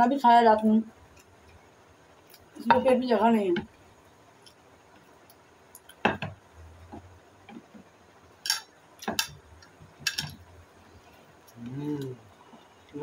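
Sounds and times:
plates knocking on table: 0:06.0 - 0:07.8.

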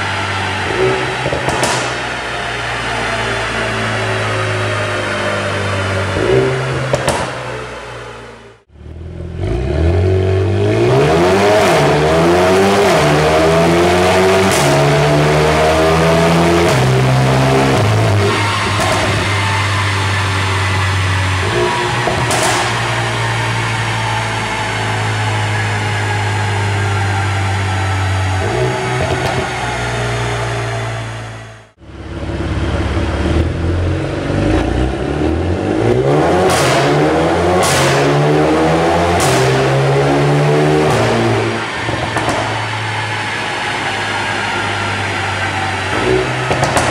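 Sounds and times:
exhaust crack: 0:00.0 - 0:09.6, 0:12.9 - 0:46.9
car engine accelerating: 0:00.0 - 0:46.9.

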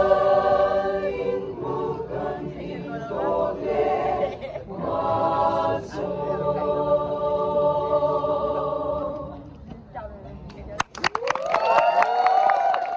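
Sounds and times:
church choir singing a cappella: 0:00.0 - 0:09.5.

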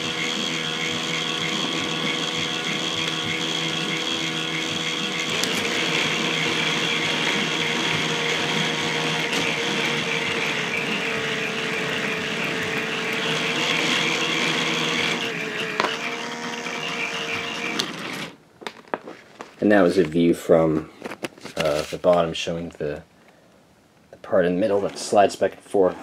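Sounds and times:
electric motor whine: 0:00.0 - 0:18.4.

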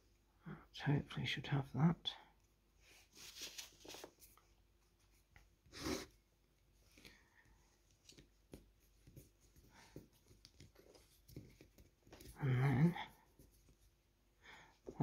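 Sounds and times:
faint clicks and scratchy rubbing: 0:06.8 - 0:14.0.

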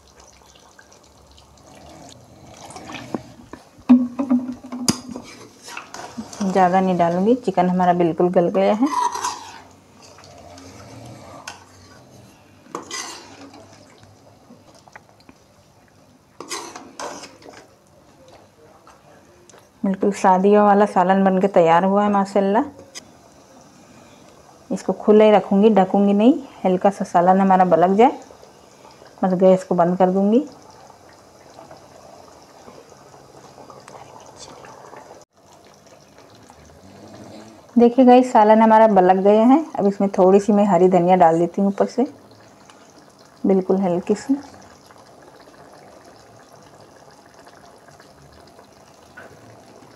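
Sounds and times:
curry simmering in a pan: 0:00.0 - 0:03.8, 0:04.6 - 0:19.5, 0:22.8 - 0:49.9
ladle scraping metal pot: 0:04.9 - 0:06.8, 0:08.8 - 0:10.8, 0:12.7 - 0:13.8, 0:16.4 - 0:17.6.

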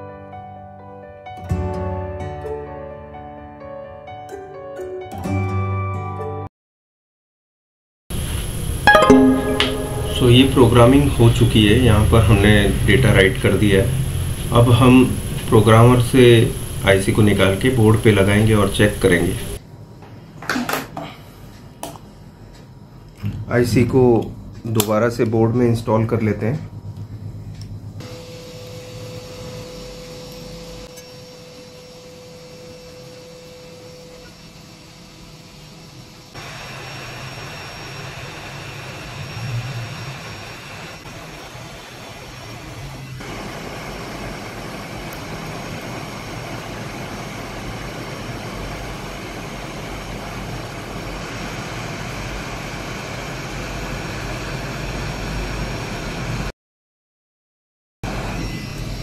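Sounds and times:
hot-air gun blowing: 0:16.2 - 0:16.9, 0:36.3 - 0:55.4.

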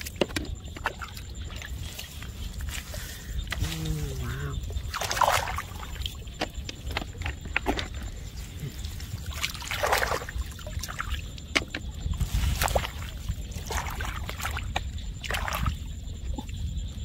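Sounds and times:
muddy water splashing: 0:00.0 - 0:16.6
squelching mud: 0:00.8 - 0:11.0.

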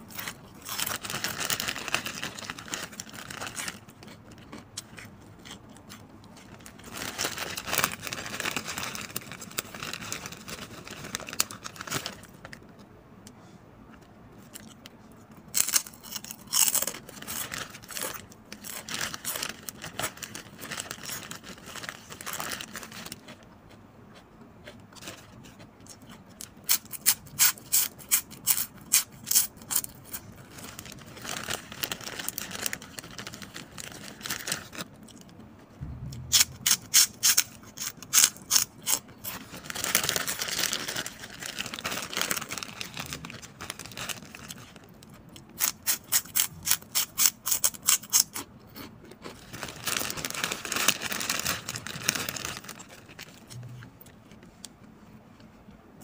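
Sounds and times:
pork rinds crunching: 0:00.0 - 0:12.4, 0:14.4 - 0:35.3, 0:36.2 - 0:54.4
plastic bag crinkling: 0:00.2 - 0:04.5, 0:06.4 - 0:12.6, 0:16.9 - 0:23.2, 0:30.4 - 0:34.9, 0:39.2 - 0:44.9, 0:49.4 - 0:53.6.

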